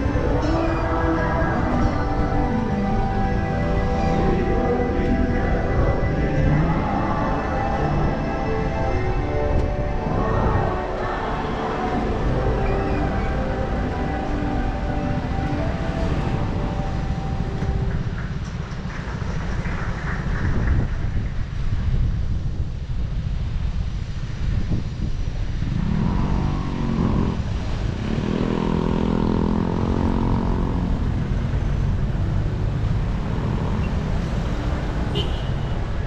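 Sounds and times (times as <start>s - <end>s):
city traffic rumble: 0.0s - 36.0s
vehicle engine passing: 25.6s - 35.2s.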